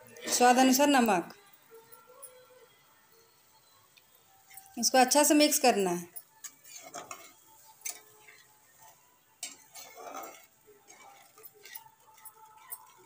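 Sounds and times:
spatula scraping metal pan: 0:06.4 - 0:13.0.

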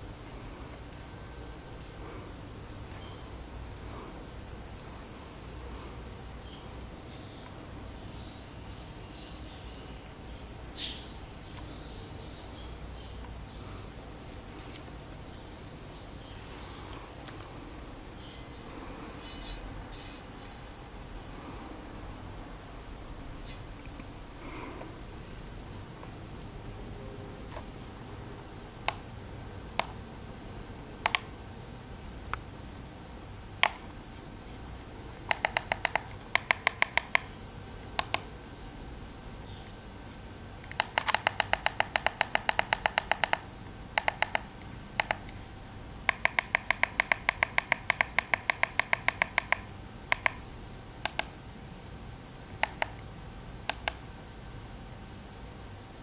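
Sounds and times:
display button ticks: 0:46.1 - 0:50.4.

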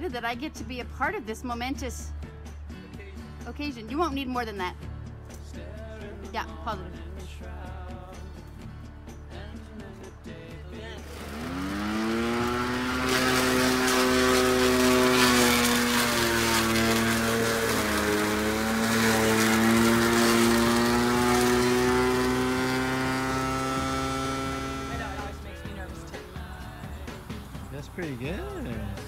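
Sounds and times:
electric lawn mower motor whine: 0:11.0 - 0:28.8.

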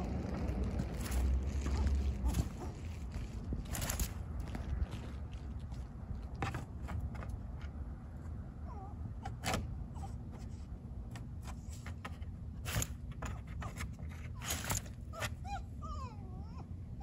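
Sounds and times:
footsteps: 0:00.0 - 0:07.4
rustling clicks and scrapes: 0:00.0 - 0:07.8, 0:10.3 - 0:15.4
steady low rumble: 0:00.0 - 0:15.2.

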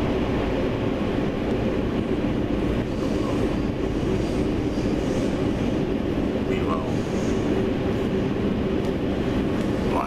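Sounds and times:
train rumbling inside carriage: 0:00.0 - 0:10.0.

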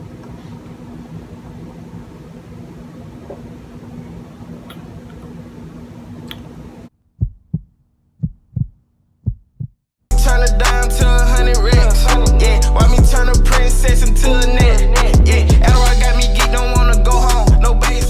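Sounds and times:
deep thumps like heartbeat: 0:07.2 - 0:09.8.

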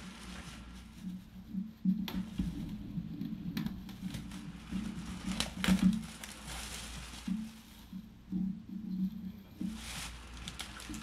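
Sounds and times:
plastic bag crinkling: 0:04.0 - 0:07.8, 0:09.6 - 0:11.0.

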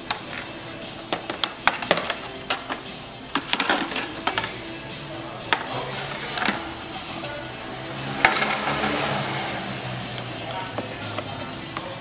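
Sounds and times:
background music: 0:00.0 - 0:12.0
plastic panels clicking and knocking: 0:01.1 - 0:04.6.

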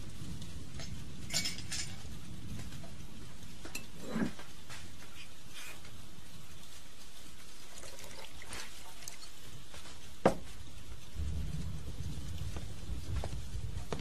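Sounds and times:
low rumble: 0:00.0 - 0:05.0, 0:10.9 - 0:14.0
glass clink: 0:00.8 - 0:02.0
drink pouring into a glass: 0:07.7 - 0:09.3.

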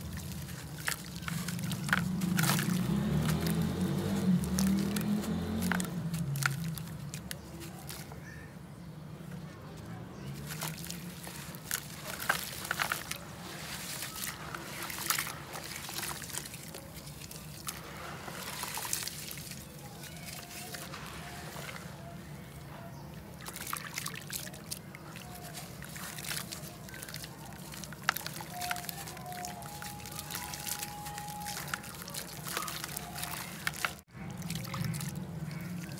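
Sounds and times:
hands splashing in muddy water: 0:00.0 - 0:08.2, 0:10.3 - 0:35.9
gritty crackles of clay breaking: 0:00.0 - 0:08.3, 0:10.2 - 0:22.0, 0:23.2 - 0:35.9.

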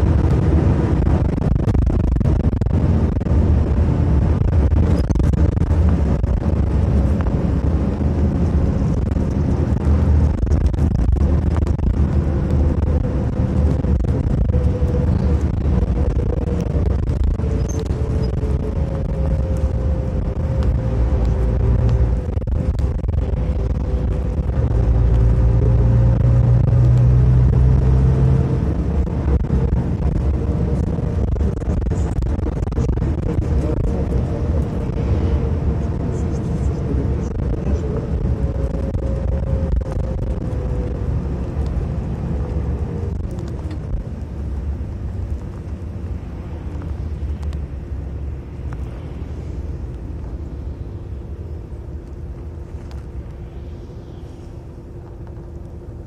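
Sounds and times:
bus engine and road rumble: 0:00.0 - 0:56.0
faint whine: 0:00.0 - 0:56.0.

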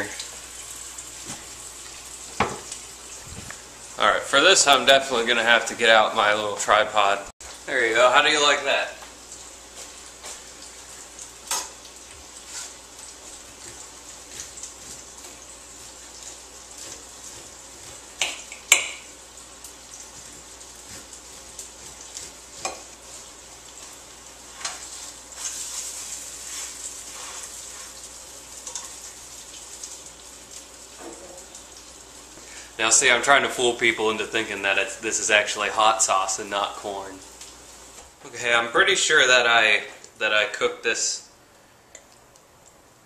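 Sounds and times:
fish sizzling in a pan: 0:00.0 - 0:04.0, 0:08.7 - 0:34.0, 0:35.4 - 0:38.2.

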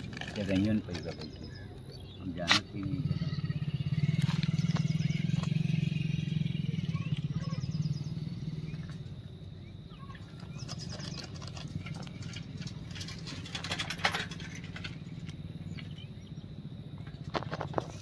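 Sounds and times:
clicks and rustles of handling: 0:00.0 - 0:01.5, 0:10.5 - 0:15.4.

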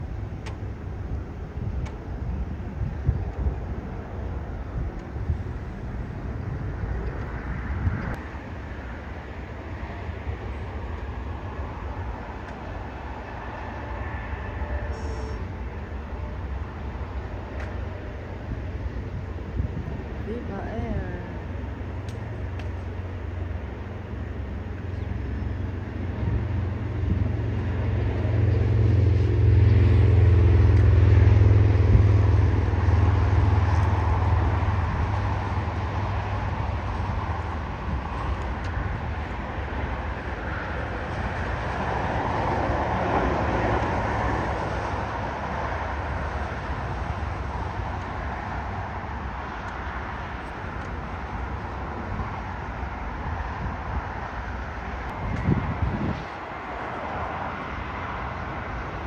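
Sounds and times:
airliner jet engines rumbling: 0:00.0 - 0:59.0.

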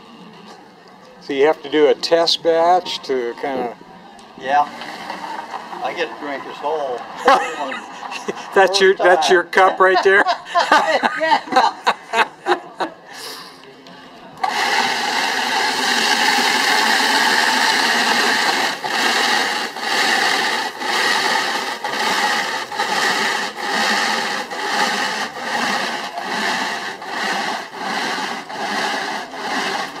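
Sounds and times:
blender churning: 0:04.4 - 0:10.2, 0:14.4 - 0:30.0.

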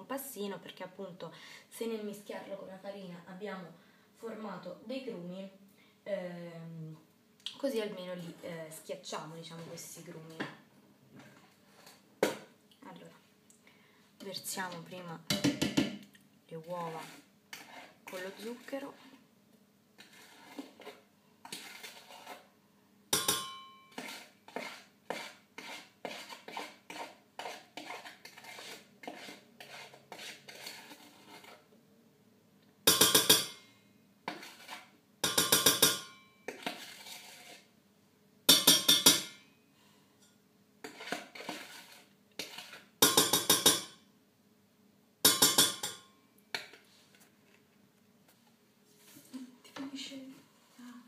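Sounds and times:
metal spoon scraping a bowl: 0:16.8 - 0:19.2, 0:20.0 - 0:22.5, 0:23.2 - 0:31.7, 0:34.3 - 0:37.7, 0:40.2 - 0:44.0, 0:45.3 - 0:46.8.

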